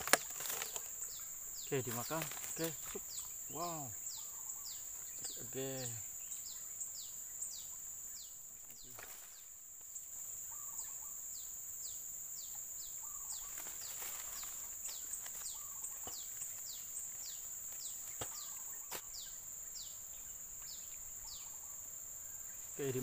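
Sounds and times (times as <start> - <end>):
high-pitched insect drone: 0.0 - 23.0
bird call notes: 12.5 - 16.4.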